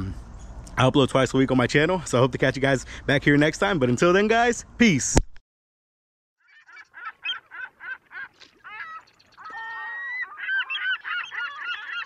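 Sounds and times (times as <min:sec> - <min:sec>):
geese honking: 0:06.5 - 0:12.0.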